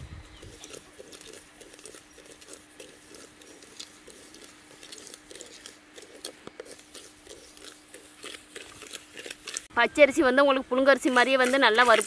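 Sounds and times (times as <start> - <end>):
rice crackling in a pot: 0.5 - 9.7.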